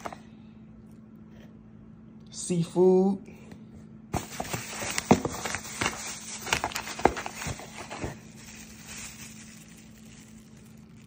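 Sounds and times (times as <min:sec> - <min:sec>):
faint steady hum: 0:00.0 - 0:11.0
plastic packaging rustling: 0:04.2 - 0:11.0.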